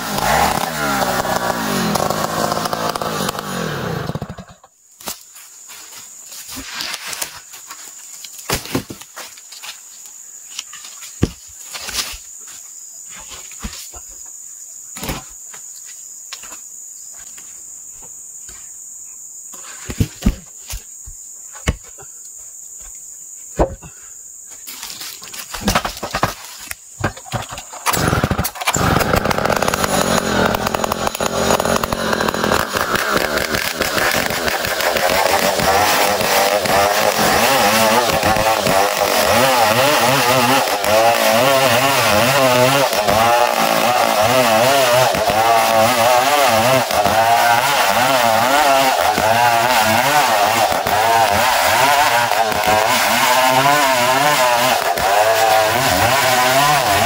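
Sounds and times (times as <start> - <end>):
chainsaw cutting wood plank: 0.0 - 4.7, 25.7 - 57.0
chainsaw running: 0.0 - 4.7, 27.0 - 57.0.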